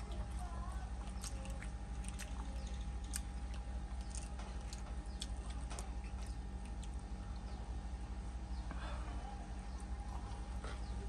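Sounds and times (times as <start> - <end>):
fingers picking at food in bowl: 0.0 - 7.5
steady low hum: 0.0 - 11.0
man chewing: 1.0 - 7.2.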